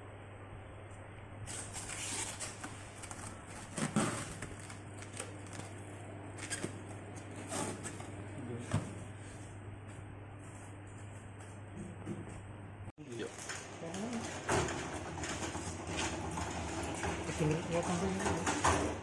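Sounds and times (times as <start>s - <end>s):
plastic wrap and cardboard rustling: 1.5s - 8.1s.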